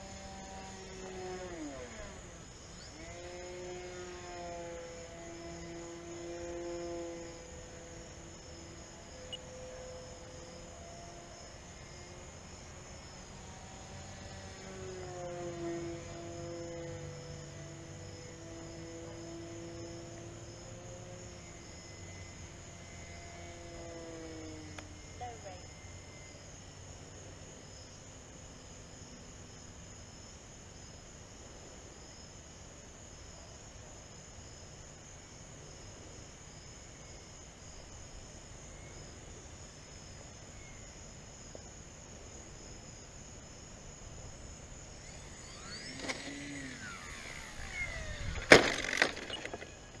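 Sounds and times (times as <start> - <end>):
model plane motor whine: 0.0 - 30.3, 42.5 - 50.0
insect chirring: 0.0 - 50.0.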